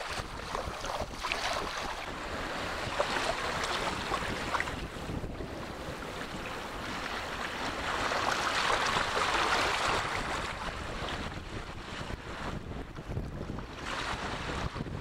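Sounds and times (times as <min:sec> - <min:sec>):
small waves washing on shore: 0:00.0 - 0:15.0
wind buffeting microphone: 0:00.0 - 0:15.0.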